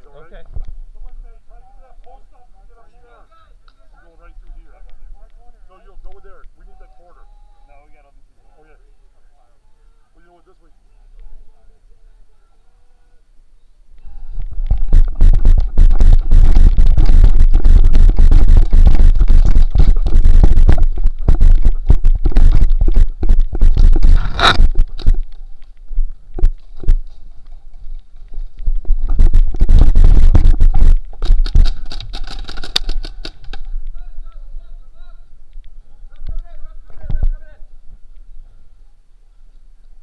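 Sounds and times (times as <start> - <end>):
camera scraping against surface: 14.4 - 33.8
heavy rumble and knocks on camera: 14.5 - 27.1, 28.5 - 33.7.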